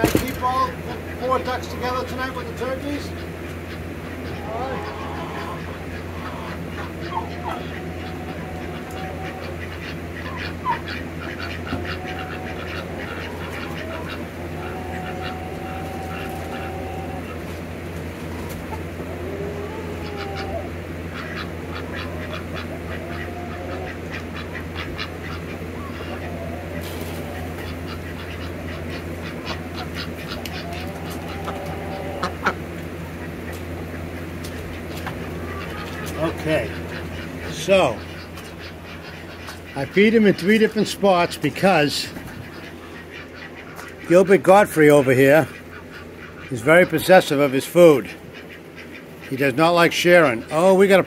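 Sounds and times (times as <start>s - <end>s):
ducks quacking: 0.0s - 51.0s
steady low hum: 0.0s - 51.0s
birds giving short high calls: 0.8s - 41.1s.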